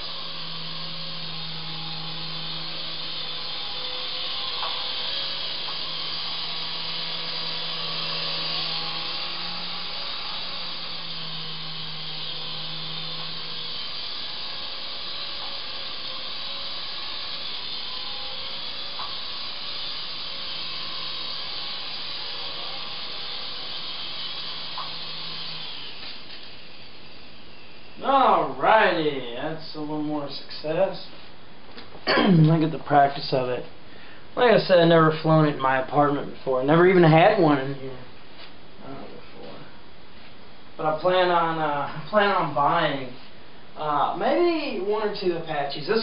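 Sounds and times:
toy helicopter rotors whirring: 0:00.0 - 0:29.0.

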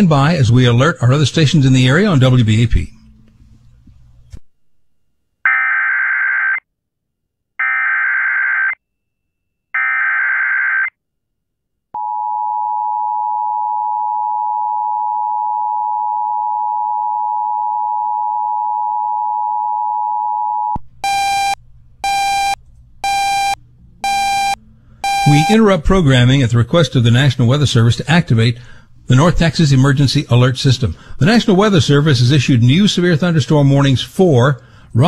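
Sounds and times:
short pulsed beeps: 0:21.0 - 0:25.6
two-tone attention signal: 0:21.0 - 0:25.6.

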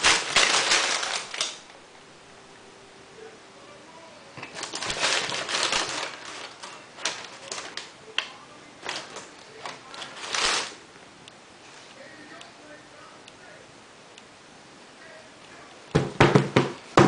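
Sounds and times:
tissue paper rustling: 0:00.0 - 0:01.8, 0:04.4 - 0:08.0, 0:08.8 - 0:10.8.

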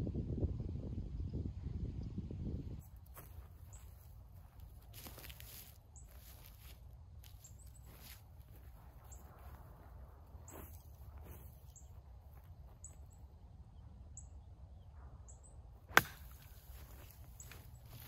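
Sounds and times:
footsteps on pine straw: 0:02.9 - 0:12.9, 0:16.4 - 0:18.0
golf club hitting ball: 0:15.9 - 0:16.5.

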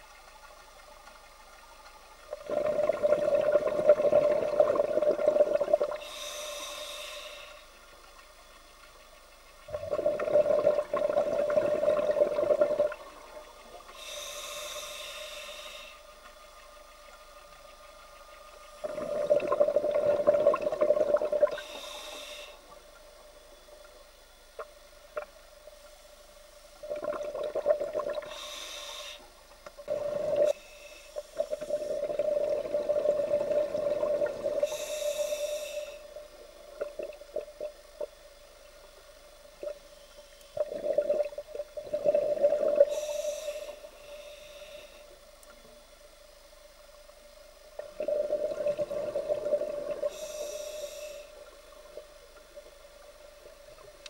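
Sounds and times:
regulator hiss on inhale: 0:02.2 - 0:08.2, 0:09.9 - 0:54.0
exhaled bubbles underwater: 0:02.3 - 0:06.0, 0:09.7 - 0:13.6, 0:18.8 - 0:21.7, 0:26.8 - 0:28.3, 0:29.8 - 0:30.6, 0:31.4 - 0:34.8, 0:40.5 - 0:43.1, 0:47.8 - 0:50.2.

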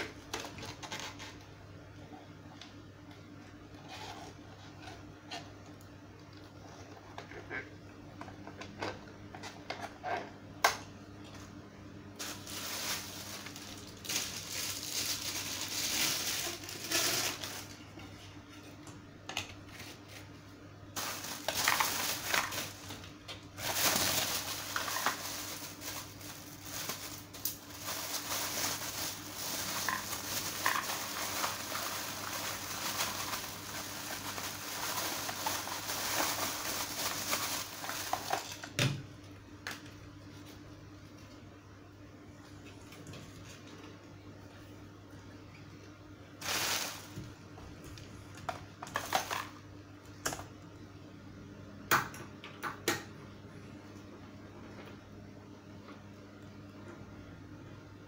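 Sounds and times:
plastic packaging rustling: 0:12.2 - 0:18.0, 0:20.9 - 0:38.8, 0:46.4 - 0:47.4, 0:48.0 - 0:49.6
plastic attachments being handled: 0:21.0 - 0:38.7.

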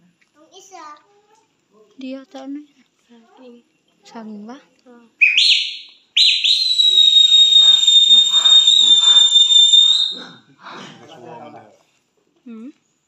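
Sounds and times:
loud finger whistle: 0:05.2 - 0:10.2.

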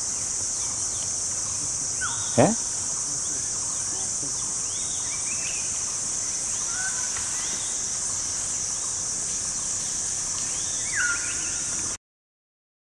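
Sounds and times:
forest insects chorus: 0:00.0 - 0:12.0
whistled bird calls: 0:10.8 - 0:11.7.

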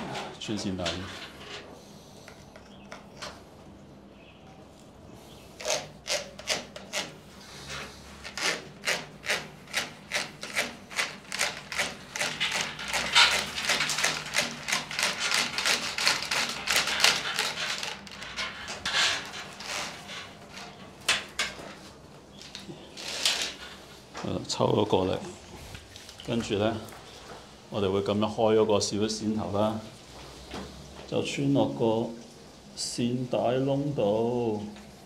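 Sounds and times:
fish tape rasping in conduit: 0:05.4 - 0:21.5, 0:22.6 - 0:24.0.

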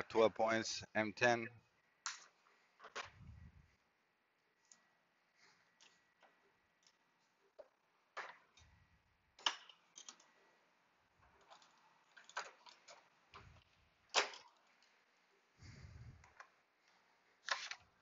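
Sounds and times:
tools clicking and clinking: 0:09.4 - 0:10.3.

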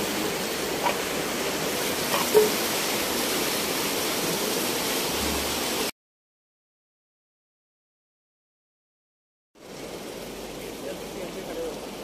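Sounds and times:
river water rushing: 0:00.0 - 0:05.9.

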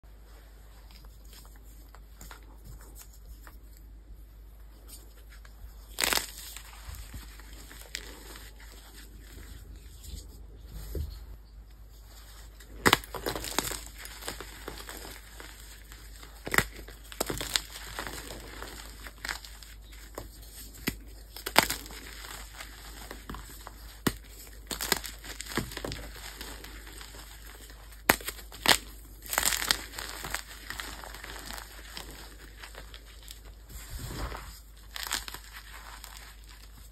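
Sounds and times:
chalk crunching and crumbling: 0:00.2 - 0:11.2, 0:11.8 - 0:36.9.

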